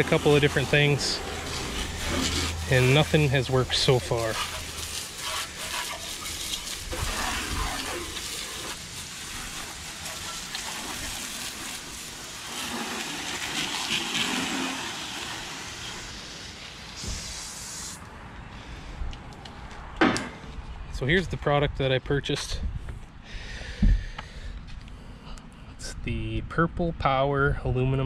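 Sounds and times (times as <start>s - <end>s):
hose spraying water on metal hull: 0.0s - 18.0s.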